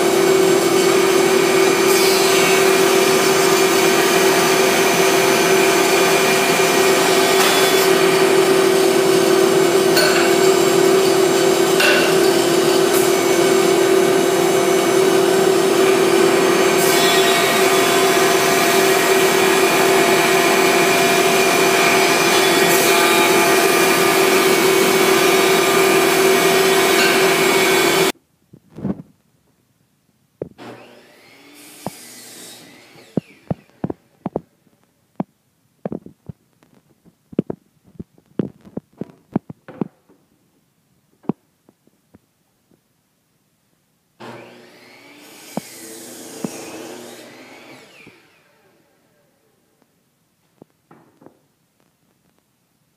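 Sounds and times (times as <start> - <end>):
thickness planer running: 0.0 - 28.1, 30.6 - 33.9, 44.2 - 49.2.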